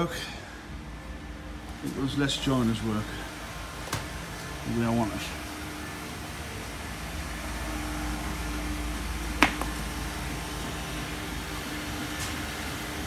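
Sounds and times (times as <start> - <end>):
faint steady hum: 0.0 - 13.0
sharp knocks: 9.4 - 9.8.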